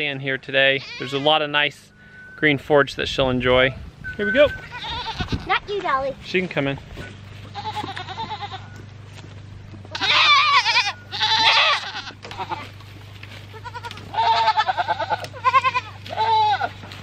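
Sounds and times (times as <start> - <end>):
goats bleating: 0.6 - 1.5, 4.6 - 5.7, 7.4 - 8.8, 9.8 - 17.0.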